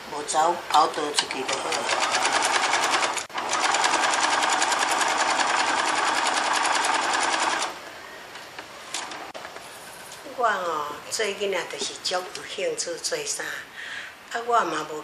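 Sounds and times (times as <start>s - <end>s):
sewing machine stitching: 1.2s - 7.7s.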